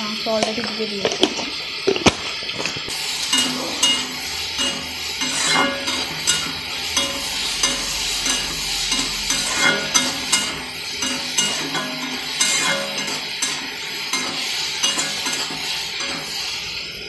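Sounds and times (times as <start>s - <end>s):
onions sizzling in oil: 0.0s - 17.0s
spatula scraping pan: 2.9s - 17.0s.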